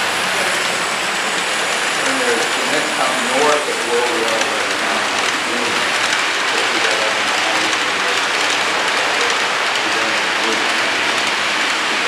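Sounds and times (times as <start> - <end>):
model train wheels on rails: 0.0 - 12.0.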